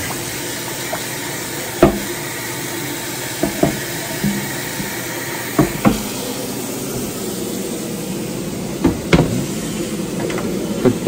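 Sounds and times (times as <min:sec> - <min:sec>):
tap running water into a pan: 0:00.0 - 0:06.2.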